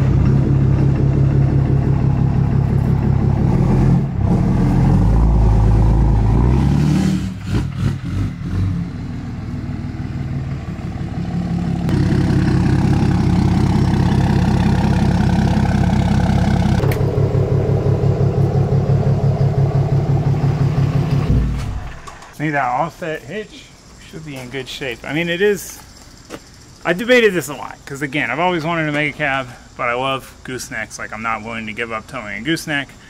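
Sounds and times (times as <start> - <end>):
pickup truck engine running: 0.0 - 4.4, 8.9 - 22.3.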